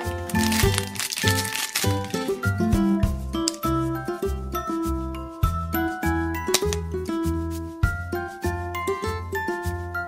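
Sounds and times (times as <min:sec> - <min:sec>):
background music with bass line: 0:02.0 - 0:10.0.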